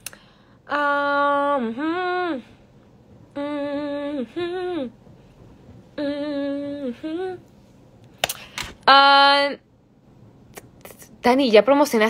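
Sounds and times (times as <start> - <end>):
woman humming a wordless tune: 0.7 - 2.6, 3.3 - 5.0, 6.0 - 7.5.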